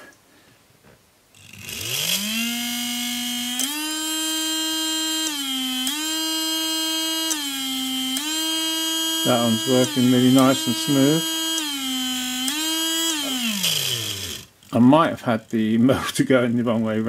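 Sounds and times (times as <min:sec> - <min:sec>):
electric motor whining: 0:01.4 - 0:14.8.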